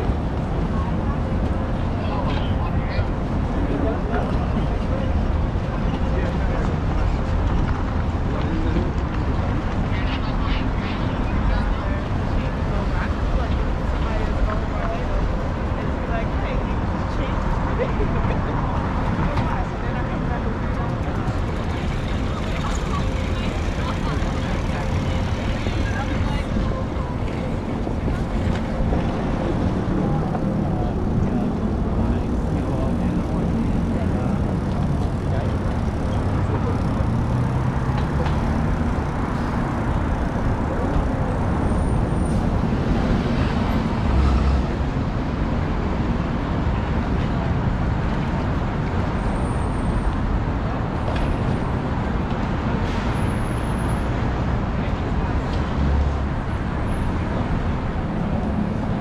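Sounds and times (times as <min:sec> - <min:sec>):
faint voices: 0:00.0 - 0:59.0
traffic rumble: 0:00.0 - 0:59.0.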